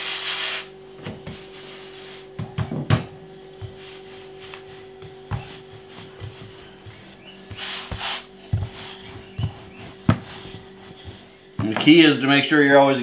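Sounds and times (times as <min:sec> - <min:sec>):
faint steady hum: 0:00.0 - 0:13.0
hand brushing flour on wood: 0:03.6 - 0:11.5.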